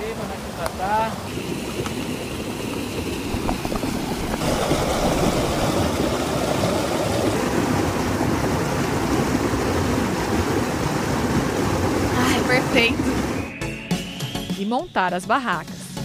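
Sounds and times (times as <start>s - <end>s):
spring water splashing over rock: 1.3s - 13.4s.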